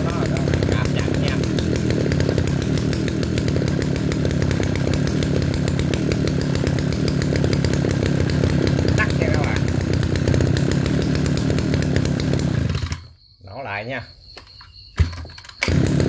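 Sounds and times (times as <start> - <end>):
brushcutter engine running: 0.0 - 13.1, 15.6 - 16.0.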